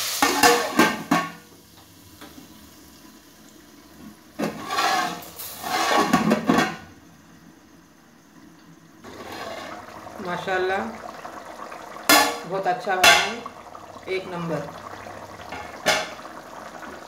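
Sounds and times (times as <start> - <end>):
hot oil sizzling: 0.0 - 17.0
metal lid clanking on pot: 12.1 - 12.4, 15.5 - 16.2.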